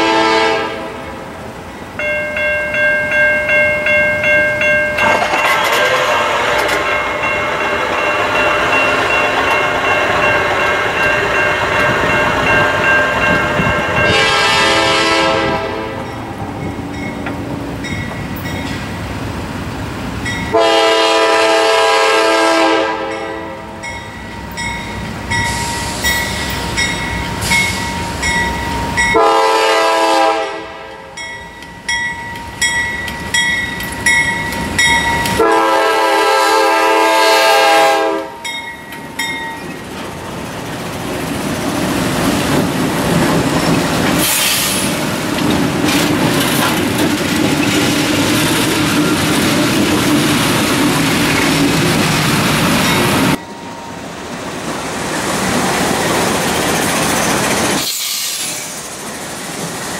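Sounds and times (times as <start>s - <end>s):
locomotive air horn blasts: 0.0s - 1.3s, 5.6s - 7.2s, 13.9s - 16.2s, 20.5s - 23.8s, 29.1s - 31.2s, 35.3s - 38.4s
train running by: 0.0s - 59.9s.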